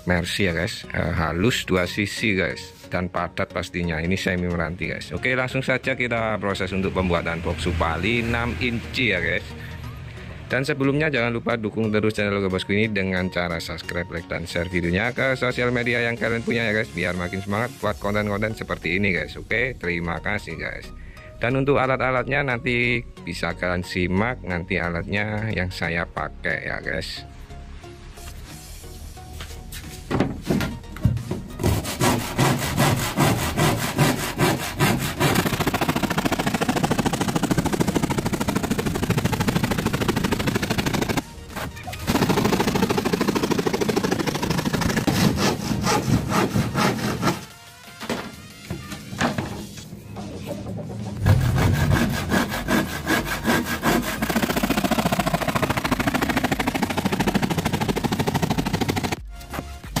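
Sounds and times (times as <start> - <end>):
hand saw cutting plywood: 31.5 - 47.6, 51.2 - 60.0.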